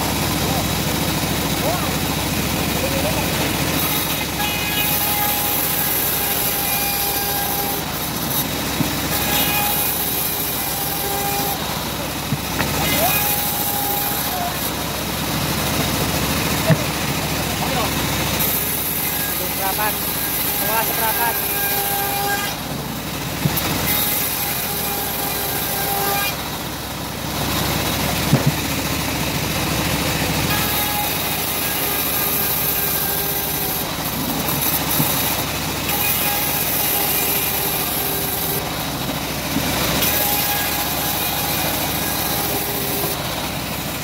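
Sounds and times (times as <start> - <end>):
bandsaw mill running: 0.0 - 44.0
blade cutting hiss in wood: 40.0 - 43.2.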